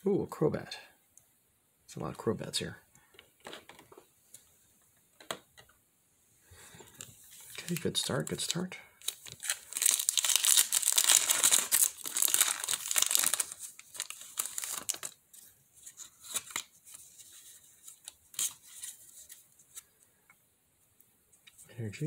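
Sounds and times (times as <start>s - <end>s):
foil wrapper tearing and crinkling: 7.4s - 15.2s, 16.2s - 16.7s.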